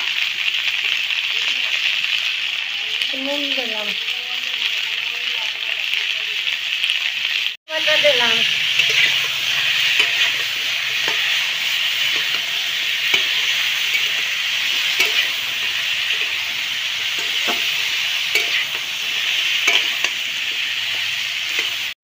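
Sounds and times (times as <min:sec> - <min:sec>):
vegetables sizzling in oil: 0:00.0 - 0:22.0
metal spatula scraping pan: 0:08.0 - 0:22.0.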